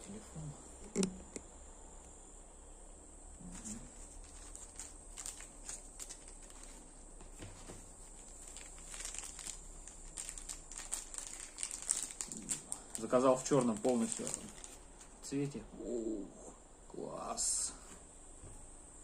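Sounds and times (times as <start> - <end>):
plastic packaging crinkling: 3.4 - 15.3.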